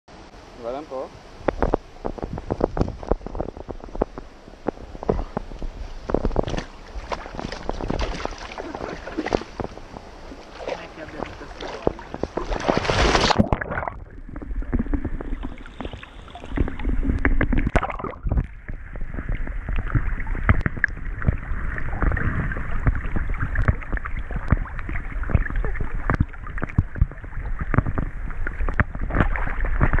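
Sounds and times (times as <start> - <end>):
water splashing from swimming dog: 6.1 - 30.0.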